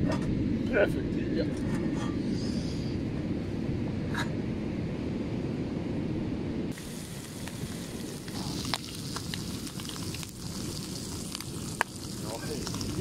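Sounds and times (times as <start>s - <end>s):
wind rumble on microphone: 0.0s - 13.0s
bacon sizzling in frying pan: 6.7s - 13.0s.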